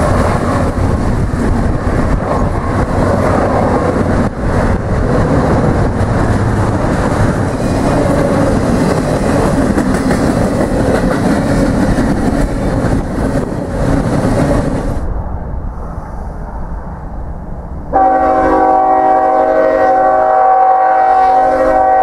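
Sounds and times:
wheels clattering over rail joints: 0:00.0 - 0:14.9
freight train wheels rumbling: 0:00.0 - 0:22.0.

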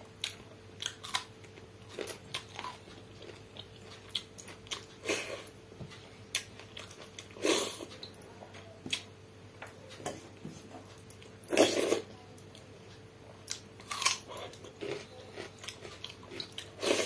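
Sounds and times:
chewing and mouth clicks: 0:00.2 - 0:05.0, 0:13.4 - 0:17.0.

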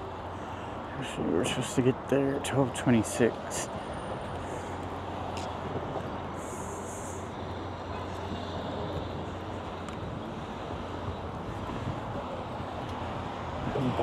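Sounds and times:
street traffic hum: 0:00.0 - 0:14.0.

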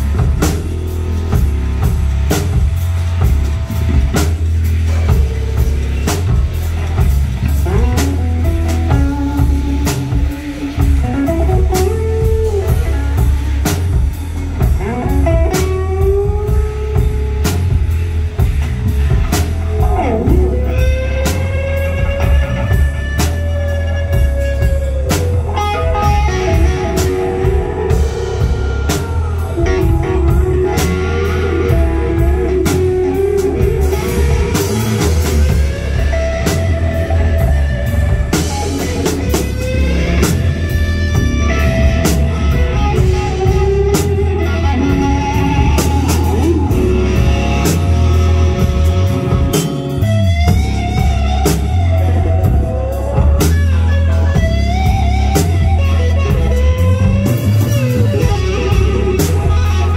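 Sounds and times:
bass guitar: 0:00.0 - 0:59.9
drum kit: 0:00.0 - 0:59.9
electric guitar bending notes: 0:00.0 - 0:59.9.

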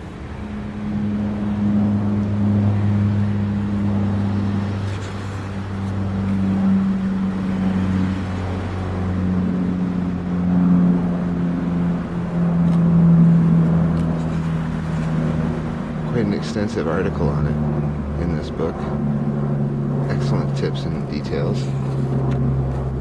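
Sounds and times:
engine drone: 0:00.0 - 0:23.0.

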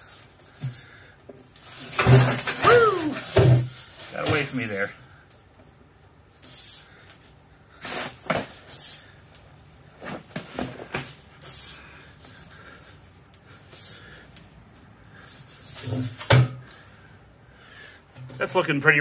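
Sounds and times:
metal pipe scuffing and rubbing: 0:15.3 - 0:16.3.

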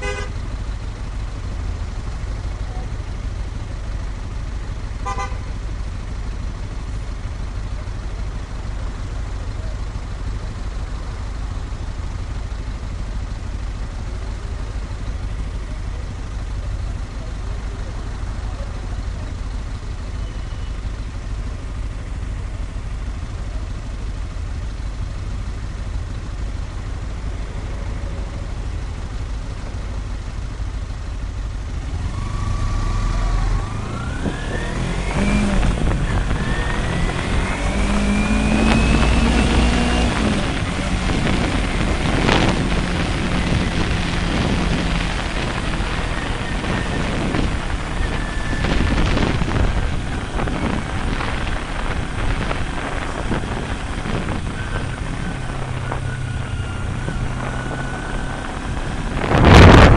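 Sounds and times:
motorcycle engine idling: 0:00.0 - 0:32.3
motorcycle accelerating through gears: 0:30.9 - 0:59.9.

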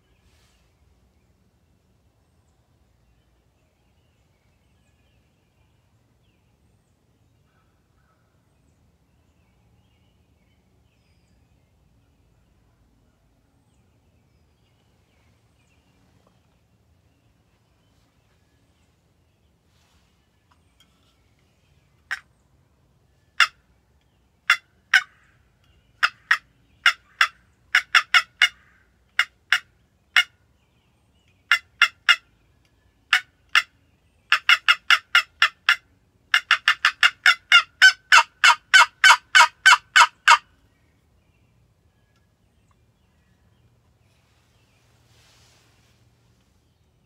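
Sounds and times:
box turkey call yelps: 0:23.4 - 0:23.6, 0:24.5 - 0:25.3, 0:26.0 - 0:30.3, 0:31.5 - 0:32.3, 0:33.1 - 0:33.7, 0:34.3 - 0:40.5.

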